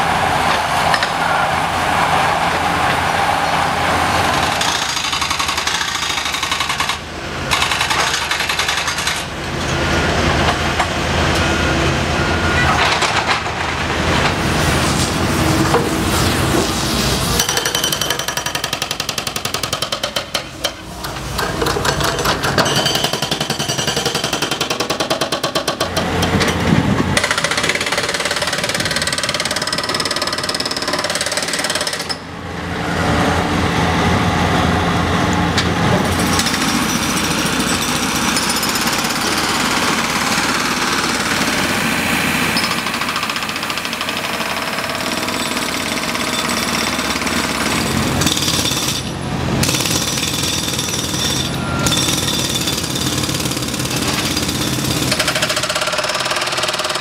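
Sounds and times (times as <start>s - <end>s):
hydraulic breaker hammering pavement: 4.4s - 9.3s, 17.4s - 32.3s, 35.9s - 57.0s
heavy diesel equipment running: 25.8s - 57.0s.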